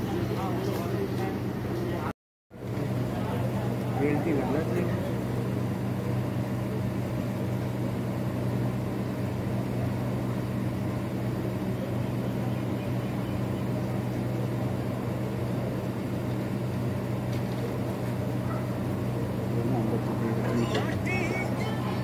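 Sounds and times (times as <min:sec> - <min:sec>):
engine drone: 0:00.0 - 0:22.0.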